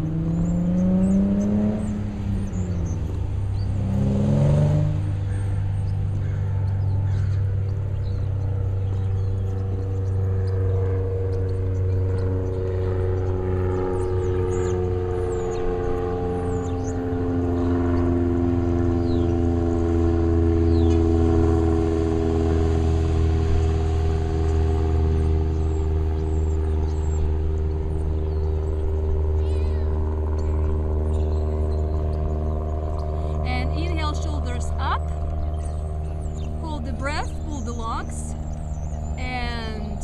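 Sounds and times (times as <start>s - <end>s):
birds chirping: 0.0s - 40.0s
engine drone with low hum: 0.0s - 40.0s.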